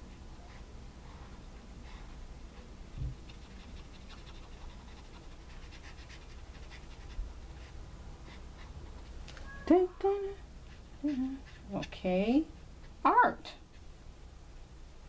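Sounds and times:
marker scratching on paper: 3.2 - 9.1, 10.7 - 13.9.

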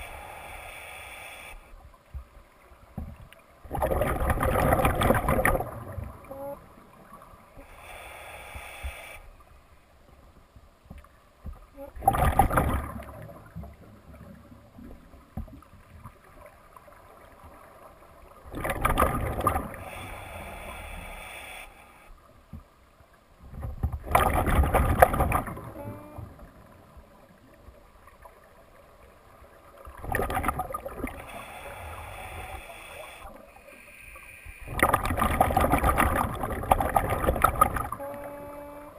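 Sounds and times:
regulator inhale hiss: 0.0 - 1.8, 7.6 - 9.5, 19.7 - 22.2, 31.1 - 34.8
exhaled bubbles rushing: 3.7 - 6.2, 12.0 - 14.3, 18.5 - 19.8, 24.0 - 25.8, 29.9 - 31.2, 34.7 - 38.0.

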